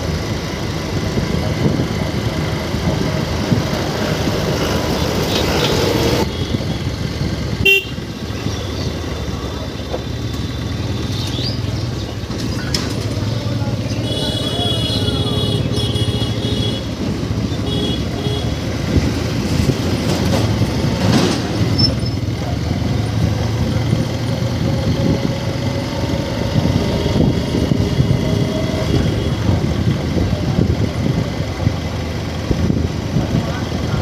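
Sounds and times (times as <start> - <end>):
motorcycle engine: 0.0 - 34.0
wind noise: 1.0 - 7.4, 18.8 - 21.9, 23.8 - 34.0.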